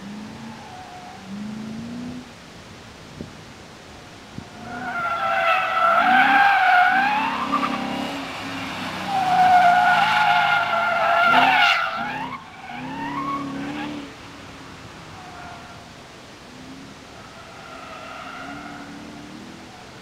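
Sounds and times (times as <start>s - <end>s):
car engine: 0.0s - 20.0s
tyres squealing: 4.6s - 13.9s.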